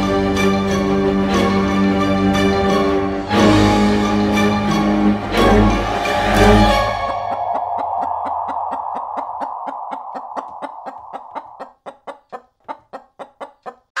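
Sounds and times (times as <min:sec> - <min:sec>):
orchestral music: 0:00.0 - 0:10.6
chicken clucking: 0:07.0 - 0:14.0.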